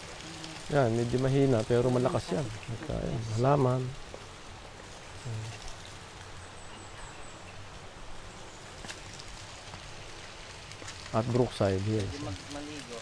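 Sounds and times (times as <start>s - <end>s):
stream trickling down rock: 0.0s - 13.0s.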